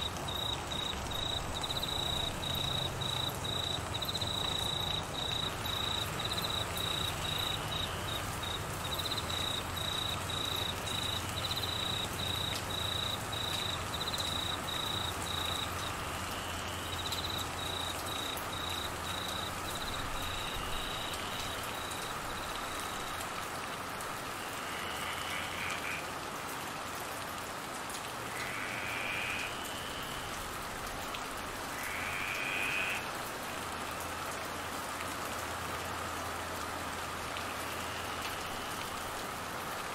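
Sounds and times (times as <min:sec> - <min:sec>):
cricket chirping: 0:00.0 - 0:23.2
rain hissing on trees: 0:00.0 - 0:39.9.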